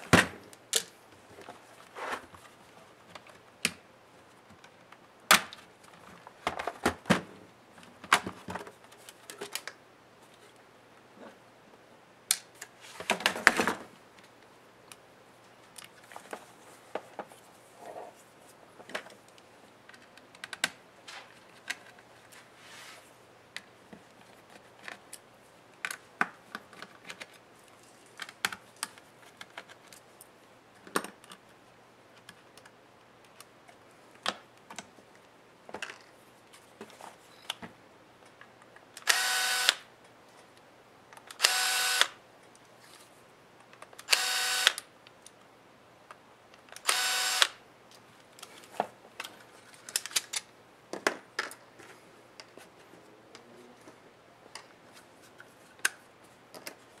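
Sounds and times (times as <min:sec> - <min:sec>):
scraping rustle: 0:01.3 - 0:02.8, 0:21.0 - 0:23.2
laptop parts clicking and knocking: 0:19.9 - 0:20.8.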